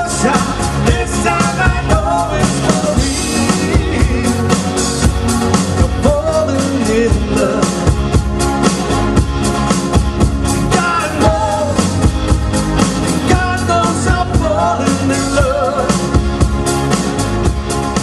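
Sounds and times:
person singing: 0.0 - 4.9, 10.7 - 12.1, 13.2 - 16.2
drum kit beat: 0.0 - 18.0.

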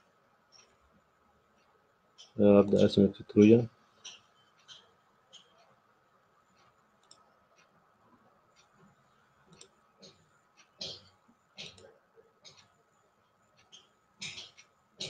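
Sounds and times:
computer mouse clicking: 6.6 - 7.7, 8.5 - 10.7.

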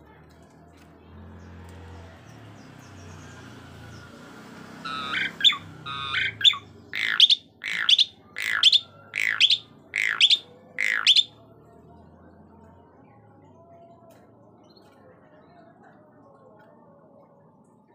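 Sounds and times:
descending whistled bird calls: 4.8 - 11.3
myna calling: 4.8 - 11.4
short squeaky bird notes: 4.9 - 11.3.

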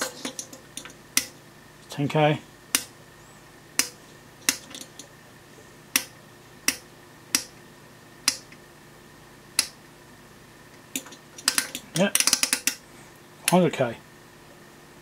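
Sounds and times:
rotary switch clicking: 8.3 - 8.6.

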